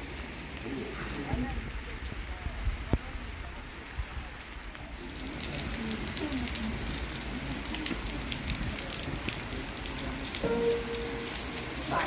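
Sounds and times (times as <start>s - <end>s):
heavy rain on wet paving: 0.0s - 12.0s.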